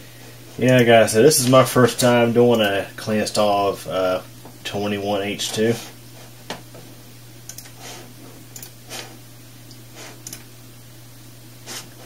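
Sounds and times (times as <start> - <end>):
steady low hum: 0.0 - 12.0
computer mouse clicking: 7.5 - 7.8, 8.5 - 8.8, 9.7 - 10.4.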